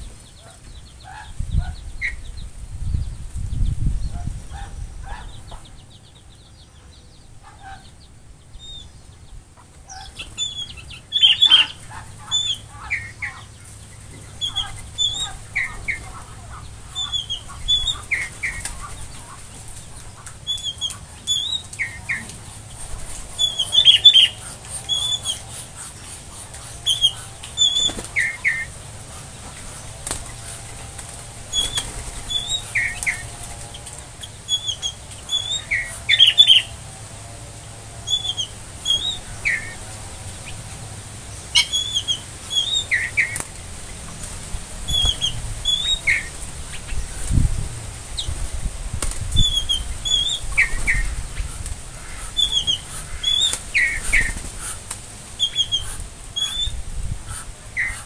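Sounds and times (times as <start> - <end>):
small birds chirping: 0.0 - 58.0
wings flapping: 9.8 - 36.9, 41.5 - 56.7.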